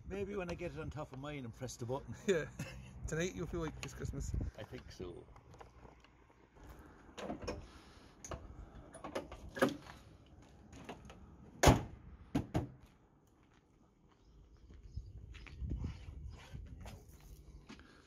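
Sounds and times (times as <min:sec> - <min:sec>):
car bonnet slamming shut: 0:11.6 - 0:12.7.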